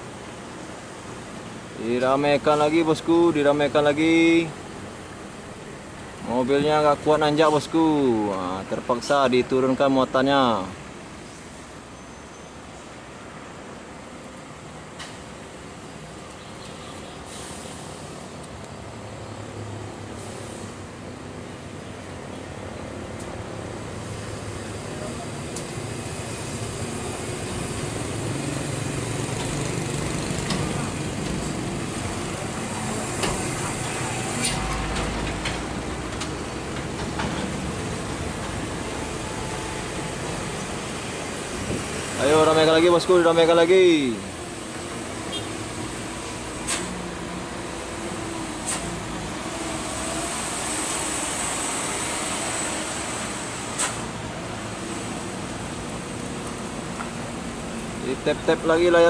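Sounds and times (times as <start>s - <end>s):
traffic engines running: 0.0s - 59.0s
pickup truck passing: 23.6s - 59.0s
sharp click: 46.7s - 46.9s, 53.8s - 54.0s.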